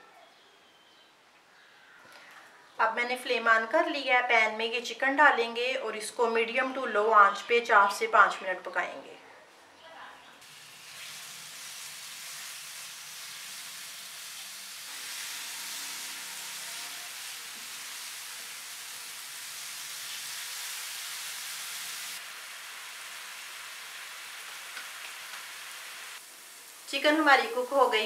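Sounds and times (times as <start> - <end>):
chicken sizzling in hot oil: 10.4 - 28.0.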